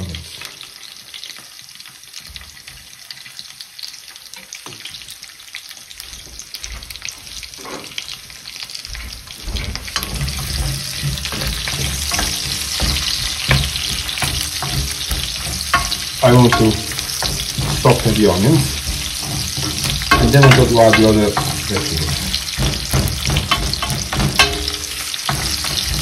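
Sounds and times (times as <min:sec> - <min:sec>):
onion sizzling in frying pan: 0:00.0 - 0:26.0
wooden spoon stirring onions: 0:06.9 - 0:26.0.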